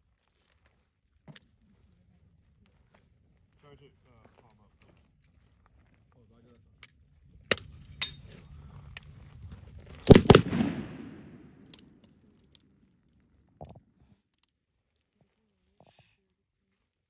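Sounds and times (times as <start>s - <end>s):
machine gun shots: 10.1s - 11.7s
gunshot echo: 10.1s - 11.8s.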